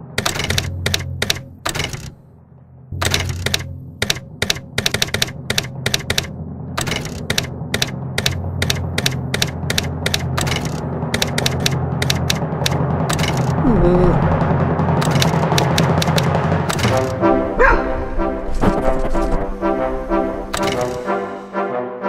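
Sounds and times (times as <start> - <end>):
typewriter keys clacking: 0.0 - 2.2, 3.0 - 13.6, 15.0 - 17.2, 20.5 - 21.1.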